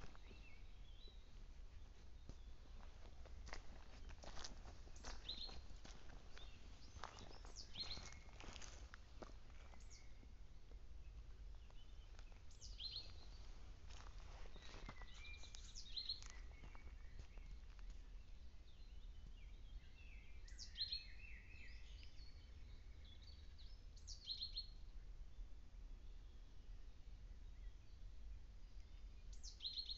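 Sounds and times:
songbirds singing: 0.0s - 29.9s.

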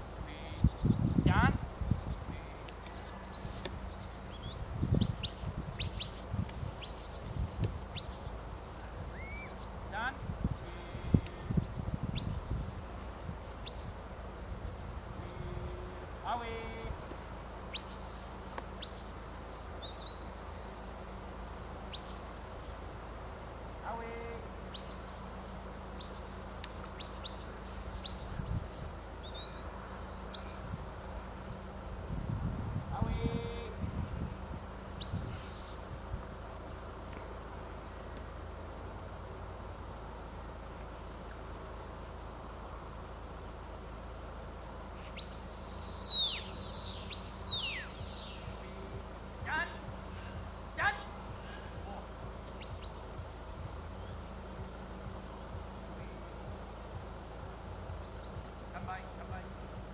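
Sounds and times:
sharp high whistles: 6.9s - 9.5s, 17.7s - 20.4s, 21.9s - 23.3s, 24.7s - 27.2s, 35.0s - 36.7s, 45.1s - 48.6s
shepherd's whistle: 45.2s - 48.1s.

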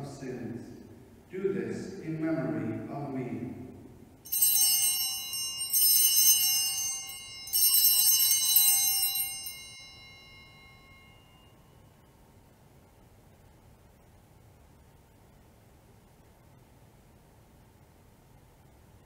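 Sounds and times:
altar bells ringing: 4.2s - 11.9s.

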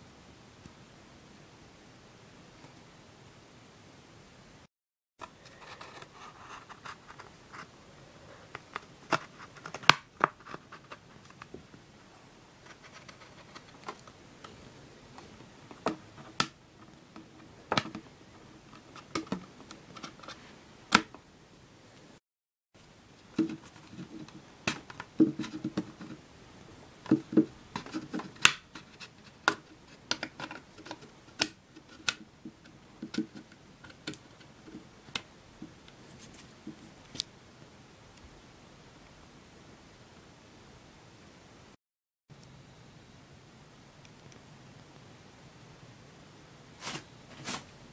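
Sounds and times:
stick scraping plastic: 27.1s - 34.9s.

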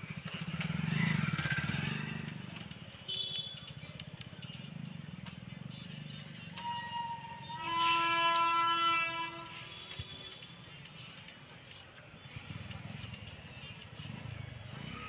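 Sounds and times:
vehicle engine running: 0.0s - 2.8s, 12.2s - 15.0s.

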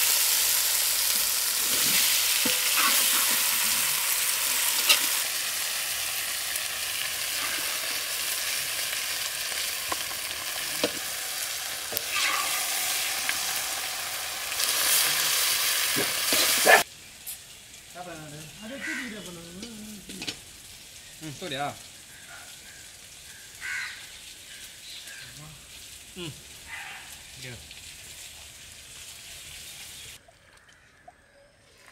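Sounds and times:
food sizzling in hot oil: 0.0s - 30.2s
ladle scraping pan: 1.6s - 5.2s, 11.9s - 13.2s.

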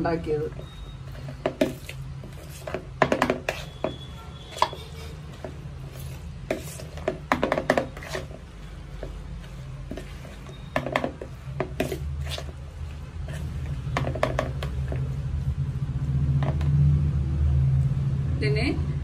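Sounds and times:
spoon scraping plastic bowl: 1.2s - 8.5s.

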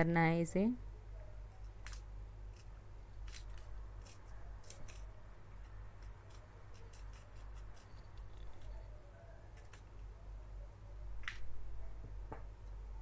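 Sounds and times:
scissors snipping paper: 1.6s - 8.9s, 9.5s - 10.0s.

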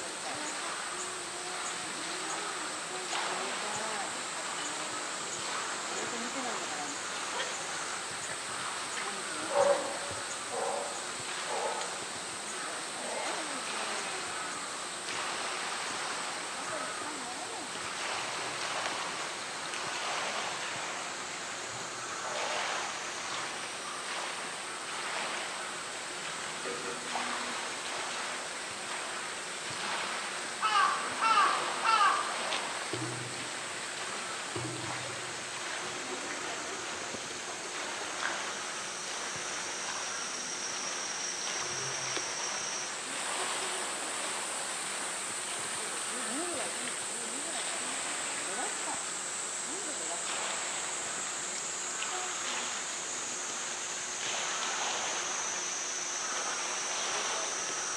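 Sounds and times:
running water rushing: 0.0s - 57.9s
high-pitched insect drone: 34.6s - 57.9s.

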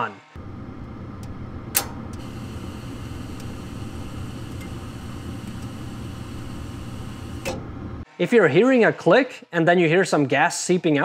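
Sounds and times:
furnace humming: 0.4s - 8.1s
gas valve clicking open: 0.8s - 7.9s.

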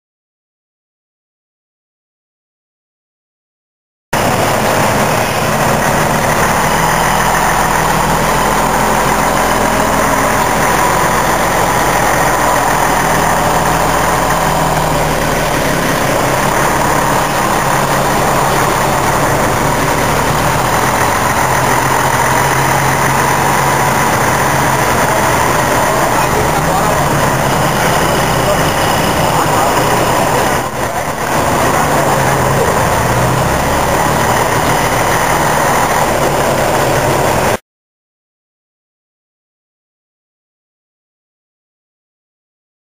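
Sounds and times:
diesel engine idling: 4.2s - 37.6s.

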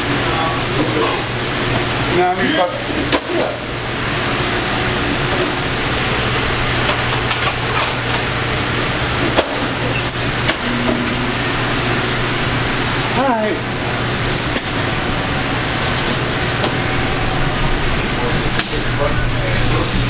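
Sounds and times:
kitchen fans roaring: 0.0s - 20.0s
low hum: 9.9s - 20.0s.

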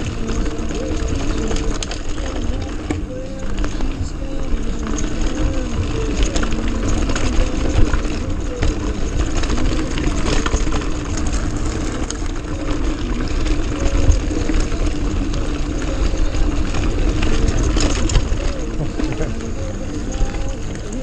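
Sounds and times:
bike rattling over roots: 0.0s - 21.0s.

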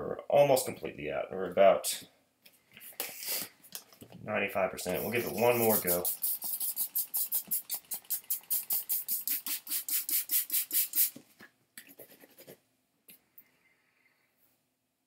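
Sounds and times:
spray bottle squirts: 4.9s - 11.2s.

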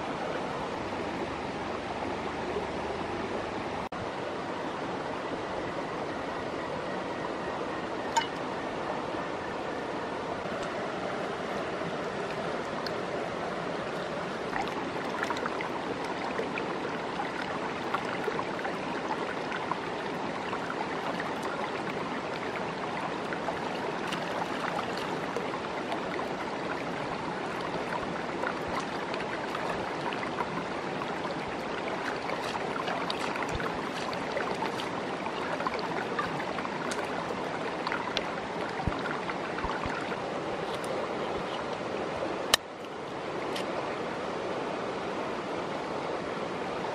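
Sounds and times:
rocky stream flowing: 0.0s - 46.9s
hands splashing in water: 32.0s - 40.1s.

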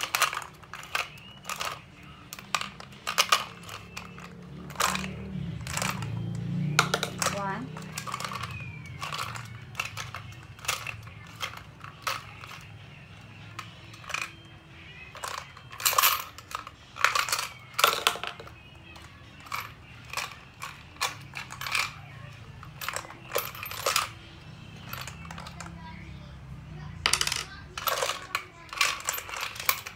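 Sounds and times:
candies rattling in plastic globe: 0.0s - 12.7s, 27.1s - 29.9s.

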